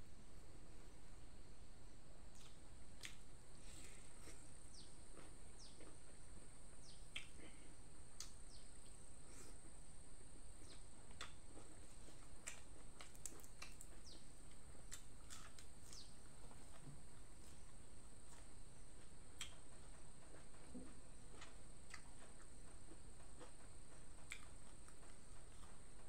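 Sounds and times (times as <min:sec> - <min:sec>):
person chewing and lip-smacking: 0:02.3 - 0:03.2, 0:07.1 - 0:07.6, 0:08.2 - 0:09.5, 0:10.6 - 0:16.1, 0:18.3 - 0:19.6, 0:20.4 - 0:22.6, 0:23.4 - 0:25.8.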